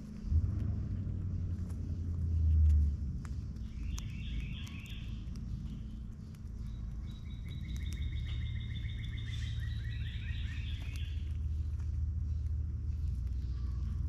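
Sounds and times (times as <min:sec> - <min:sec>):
low rumble: 0:00.0 - 0:14.0
sharp clicks: 0:03.2 - 0:11.9
bird trilling: 0:03.7 - 0:05.3, 0:06.7 - 0:11.3.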